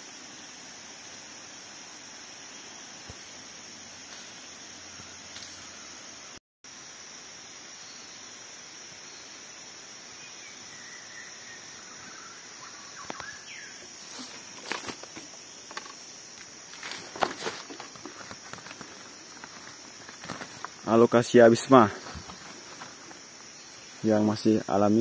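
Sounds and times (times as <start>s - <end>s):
high insect drone: 0.0s - 25.0s
rustling through undergrowth: 13.0s - 24.4s.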